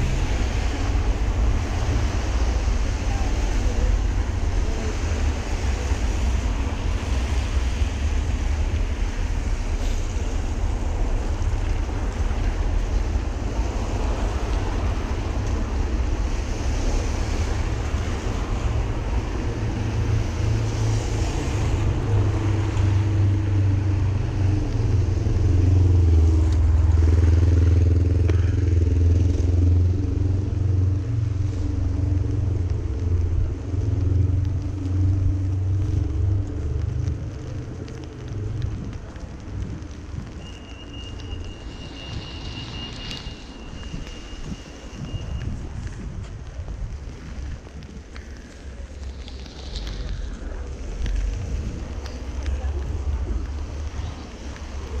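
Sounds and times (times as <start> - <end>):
vehicle engine running close: 0.0 - 40.4
street traffic rumble: 0.0 - 55.0.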